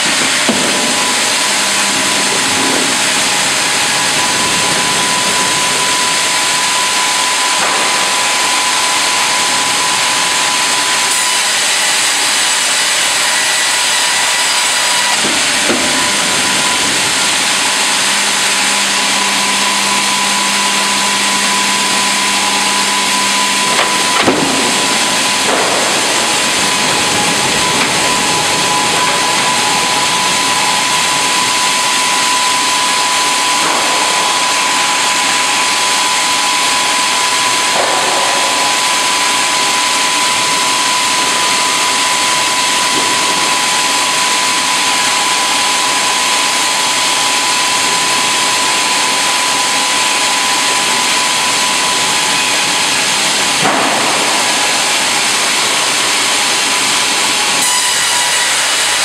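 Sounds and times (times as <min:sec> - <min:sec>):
band saw machinery whining: 0:00.0 - 0:59.0
low hum: 0:15.2 - 0:44.8.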